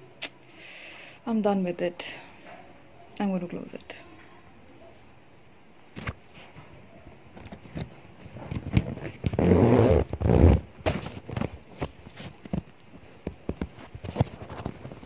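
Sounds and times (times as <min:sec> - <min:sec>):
zipper rasping: 0:08.5 - 0:10.7.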